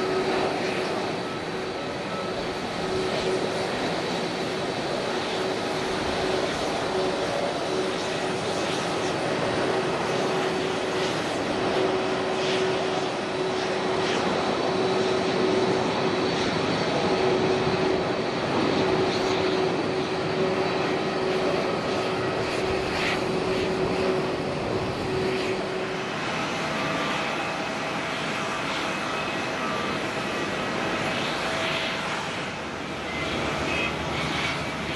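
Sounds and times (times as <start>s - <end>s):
droning engine tone: 0.0s - 34.9s
jet engines roaring at takeoff: 0.0s - 34.9s.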